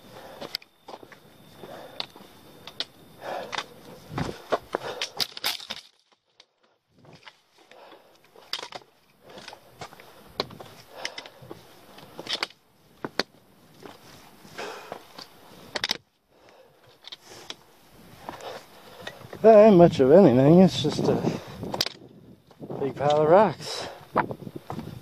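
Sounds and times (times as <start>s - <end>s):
footsteps on rocky ground: 3.5s - 6.0s, 6.9s - 15.4s, 17.5s - 25.0s.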